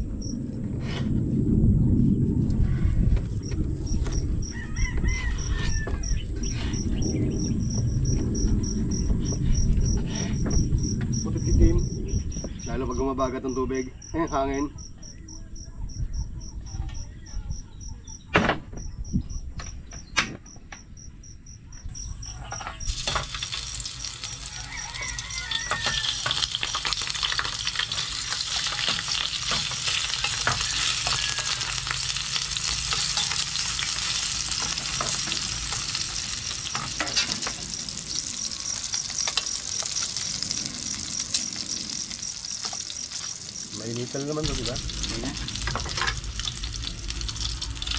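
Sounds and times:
meat sizzling in hot oil: 0:22.8 - 0:47.9.

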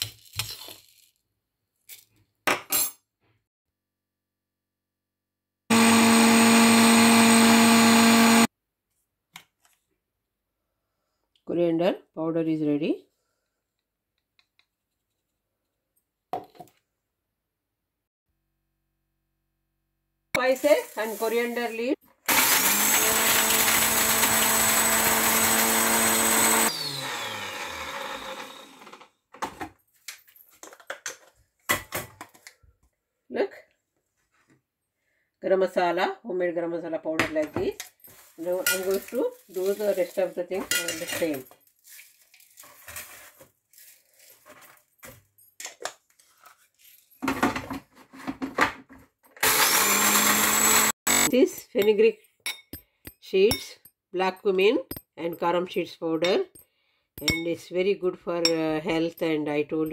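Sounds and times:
electric spice grinder running: 0:05.7 - 0:08.5, 0:22.3 - 0:29.1, 0:49.4 - 0:51.4.

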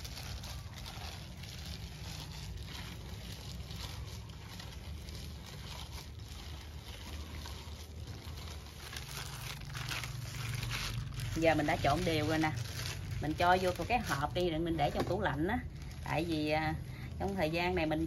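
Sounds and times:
ground beef squelching: 0:00.0 - 0:18.0.

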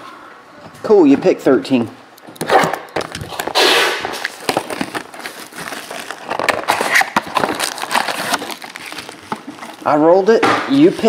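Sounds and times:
plastic wrap crinkling: 0:02.2 - 0:10.3
plastic wrap tearing: 0:02.4 - 0:10.1.

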